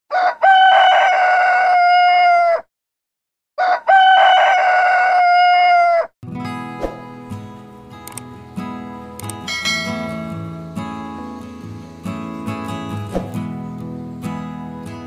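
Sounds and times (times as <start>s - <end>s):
rooster crowing: 0.1s - 2.7s, 3.6s - 6.1s.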